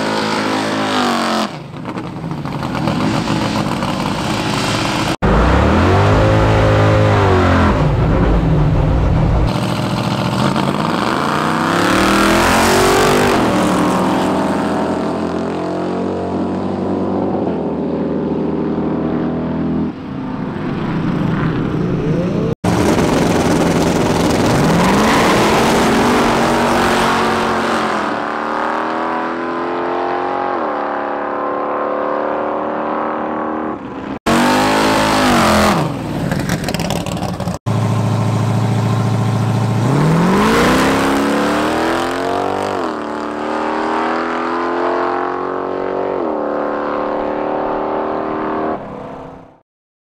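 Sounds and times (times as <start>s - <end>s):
race car engine accelerating: 21.8s - 33.4s, 37.6s - 48.8s.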